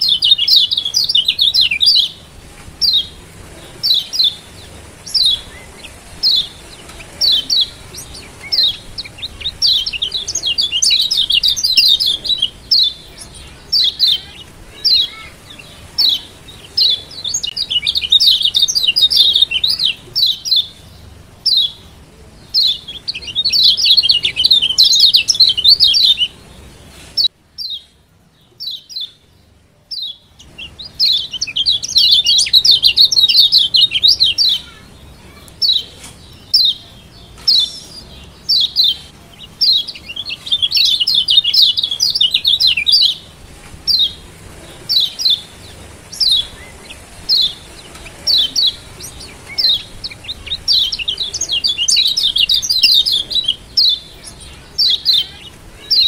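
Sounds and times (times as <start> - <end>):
bird chirping: 0.0 - 56.0.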